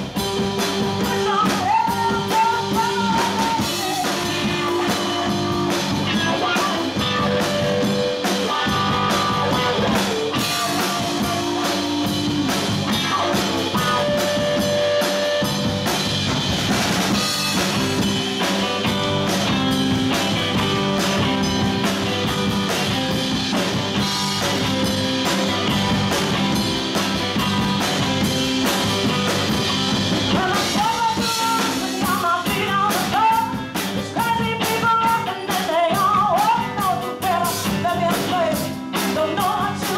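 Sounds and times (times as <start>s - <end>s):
bass guitar: 0.0s - 39.9s
drum kit: 0.0s - 39.9s
electric guitars: 0.0s - 39.9s
woman singing: 1.0s - 12.2s, 30.3s - 39.9s.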